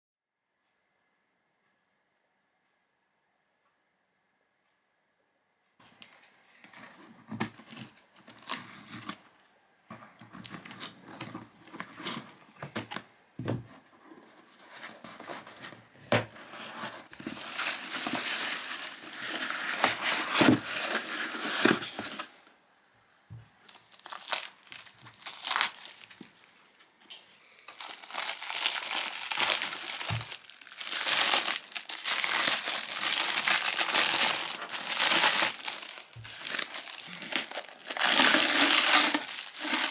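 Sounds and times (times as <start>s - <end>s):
packing paper rustling and crumpling: 6.7s - 9.2s, 16.3s - 22.3s, 23.6s - 26.5s, 27.6s - 39.9s
plastic bag crinkling: 17.0s - 22.3s, 23.6s - 26.5s, 27.5s - 39.9s.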